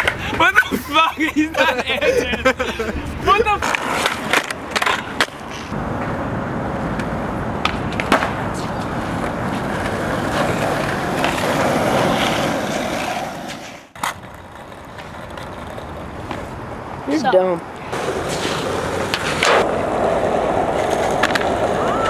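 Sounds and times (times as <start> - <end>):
skateboard clacks: 0.0 - 0.7, 3.3 - 6.2, 6.9 - 16.6, 17.9 - 22.0
skateboard wheels rolling: 0.0 - 22.0.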